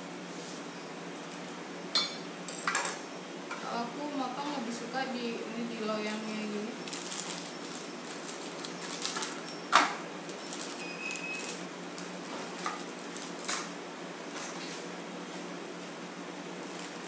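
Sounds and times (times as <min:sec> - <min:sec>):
baking paper crinkling: 0:06.0 - 0:14.9, 0:16.6 - 0:17.0.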